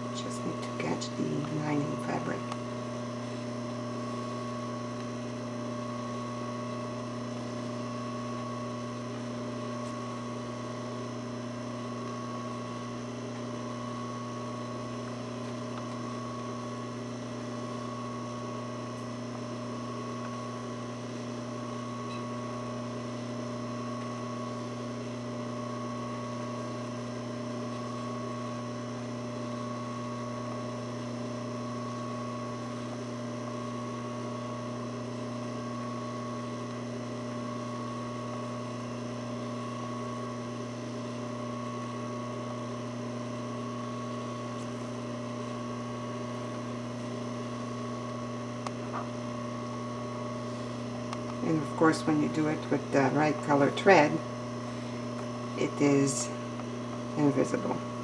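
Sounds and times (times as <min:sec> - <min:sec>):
steady background hum: 0:00.0 - 0:03.4.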